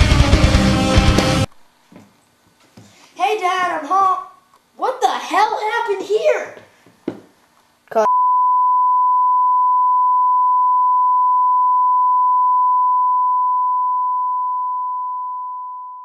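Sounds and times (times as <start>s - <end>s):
long electronic beep: 8.1s - 16.0s.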